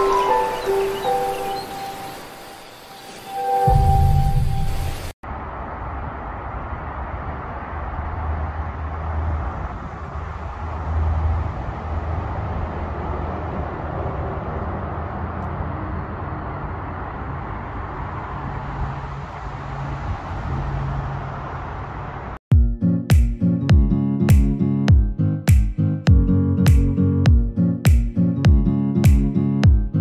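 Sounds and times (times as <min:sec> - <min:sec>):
outdoor background rumble and hiss: 0:05.2 - 0:22.4.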